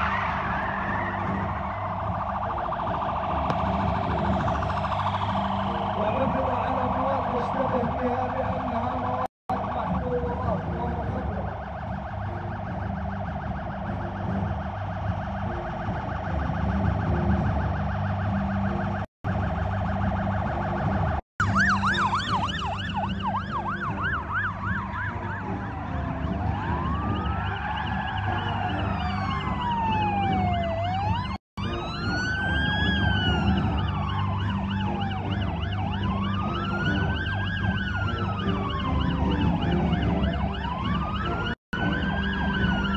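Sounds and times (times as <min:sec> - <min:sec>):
vehicle engine rumble: 0:00.0 - 0:31.3
police siren: 0:00.0 - 0:42.9.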